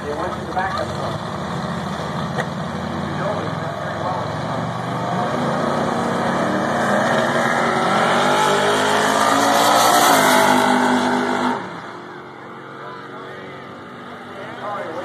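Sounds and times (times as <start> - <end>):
drag race cars accelerating: 0.0 - 15.0.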